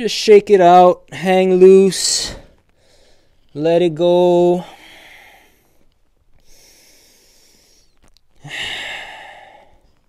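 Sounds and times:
person breathing: 2.2 - 3.5, 4.6 - 10.0.

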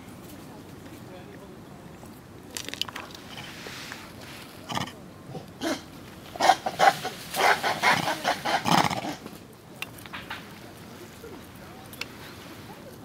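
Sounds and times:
macaques calling: 4.7 - 9.2.

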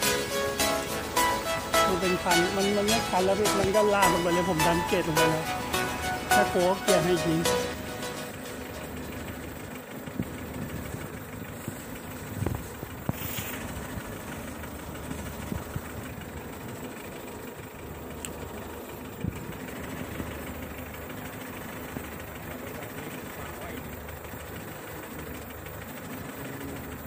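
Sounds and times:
steady low hum: 0.0 - 27.0
rustling through tall grass: 10.2 - 15.9.

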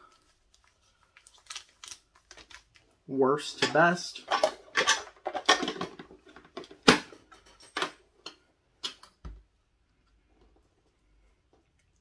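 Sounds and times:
card packs clicking and crinkling: 0.1 - 3.0.

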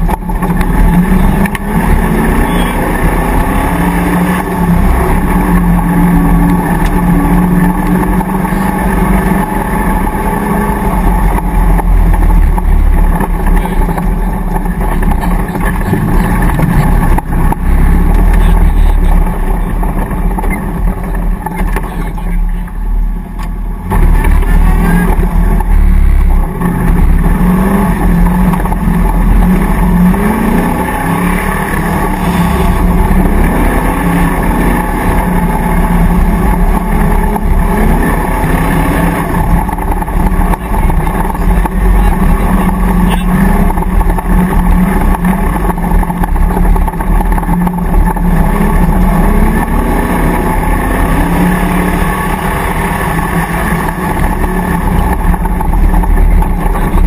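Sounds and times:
engine revving under load: 0.0 - 22.6, 23.4 - 57.0.

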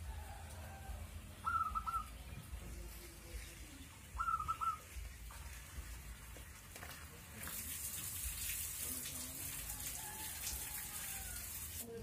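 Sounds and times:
dove cooing: 0.1 - 2.3, 4.0 - 5.1.

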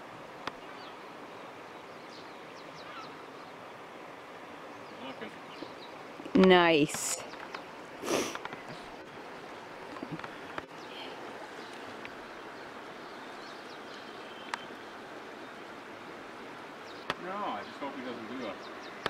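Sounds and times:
stream water flowing: 0.0 - 19.0.

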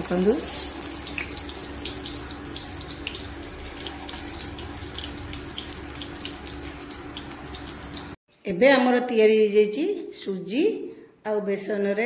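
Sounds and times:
batter frying in hot oil: 0.0 - 8.2.

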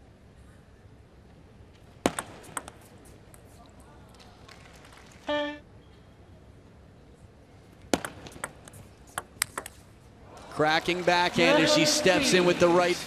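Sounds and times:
quiet hall ambience: 0.0 - 13.0
table tennis ball clicking on bats: 2.1 - 3.4, 8.0 - 9.8.

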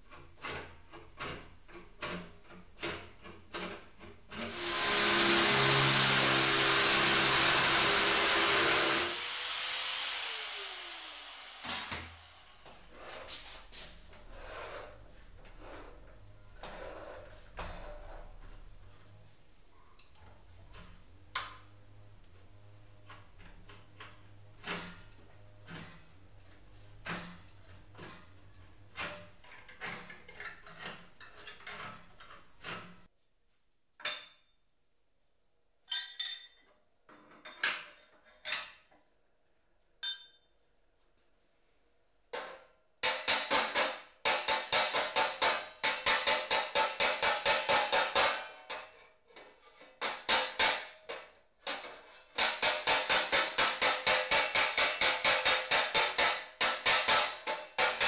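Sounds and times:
snips cutting sheet steel: 2.0 - 12.4, 43.0 - 58.0
metal clinks: 35.9 - 36.7
hammer blows on sheet steel: 43.0 - 48.7, 50.0 - 51.0, 51.7 - 58.0.

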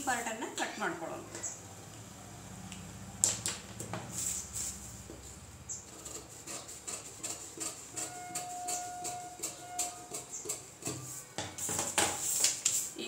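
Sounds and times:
paper rustling: 11.7 - 13.0.

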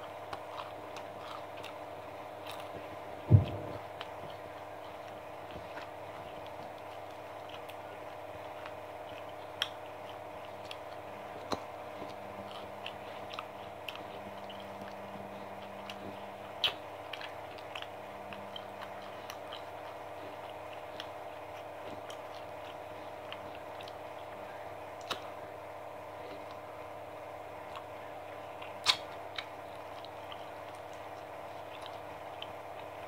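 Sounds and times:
steady hum: 0.0 - 33.0.

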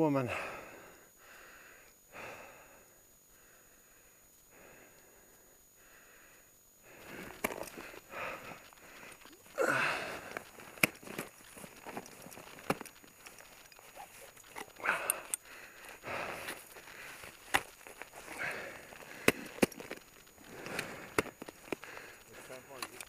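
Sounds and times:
quiet breathing: 0.2 - 23.0
ice axes striking ice: 7.0 - 23.0.

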